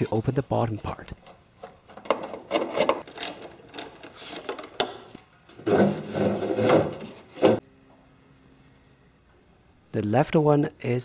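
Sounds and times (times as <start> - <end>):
metal scraping and rattling: 5.5 - 7.6.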